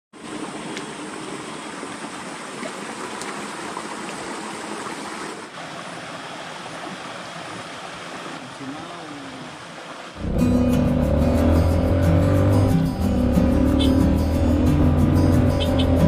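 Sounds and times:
stream running over stones: 0:00.2 - 0:10.4.

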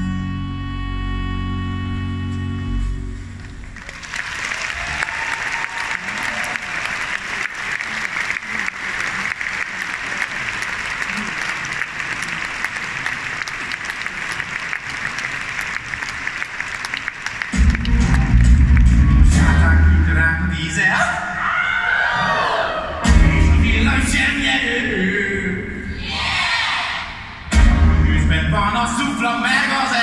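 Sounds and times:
audience applauding: 0:03.4 - 0:19.6
loud music with heavy beat: 0:23.0 - 0:24.4.

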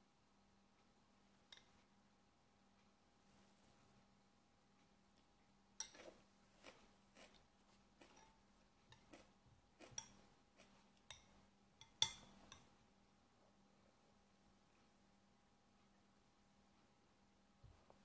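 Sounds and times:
metal spoon clinking against bowl: 0:05.8 - 0:06.2, 0:09.8 - 0:10.2, 0:11.1 - 0:12.7.

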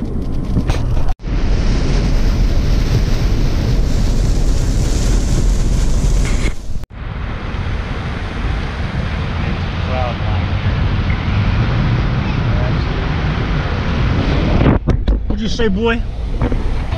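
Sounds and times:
car road noise: 0:00.0 - 0:16.9
wind noise: 0:00.0 - 0:16.9.

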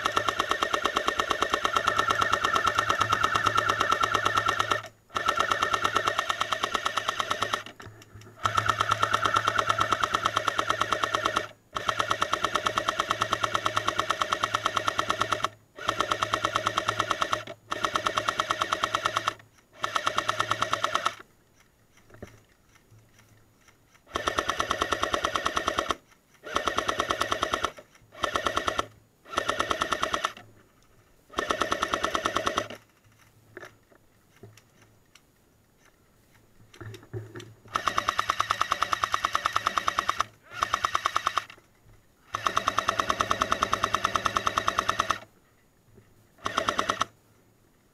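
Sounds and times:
airsoft gun automatic bursts: 0:00.0 - 0:21.2, 0:24.0 - 0:30.4, 0:31.3 - 0:32.9, 0:37.7 - 0:41.6, 0:42.2 - 0:45.3, 0:46.4 - 0:47.2
mechanical whir: 0:00.0 - 0:22.8, 0:23.9 - 0:30.4, 0:36.7 - 0:41.6, 0:42.2 - 0:45.3, 0:46.4 - 0:47.1.

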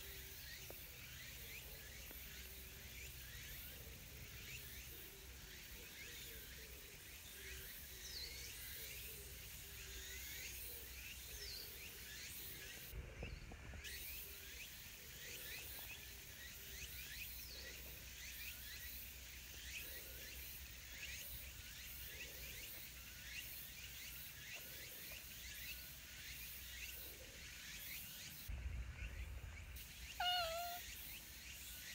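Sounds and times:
short high chirps: 0:30.2 - 0:30.8
wavering pitched call: 0:30.2 - 0:30.8.

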